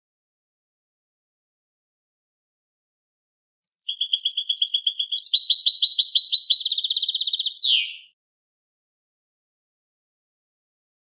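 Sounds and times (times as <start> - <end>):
goldfinch singing trill: 3.7 - 8.2.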